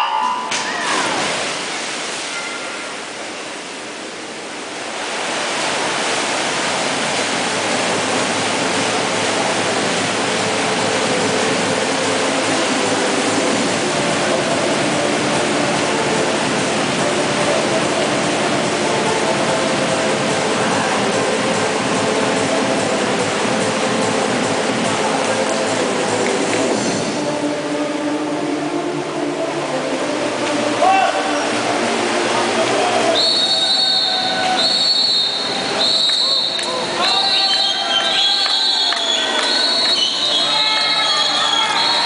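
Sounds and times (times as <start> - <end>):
echoing roar of swimmers splashing: 0.0 - 3.8, 30.0 - 42.0
dive entry splashes: 0.2 - 3.3.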